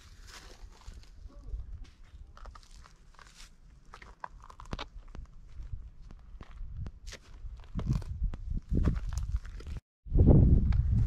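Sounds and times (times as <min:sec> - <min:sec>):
footsteps crunching on gravel: 0:00.0 - 0:09.8
wind rumble on microphone: 0:04.7 - 0:11.0.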